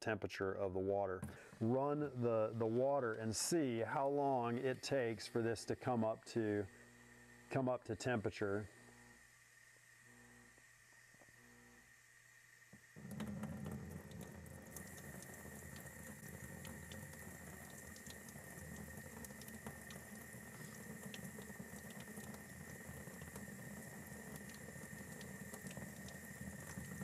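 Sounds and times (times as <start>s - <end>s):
faucet running into sink: 12.9s - 27.0s.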